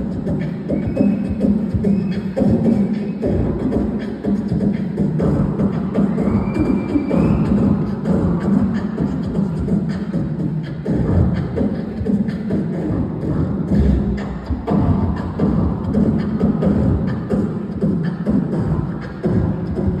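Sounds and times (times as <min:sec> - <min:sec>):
person beatboxing: 0:00.0 - 0:20.0
rising whistle: 0:00.6 - 0:03.7, 0:05.6 - 0:08.1.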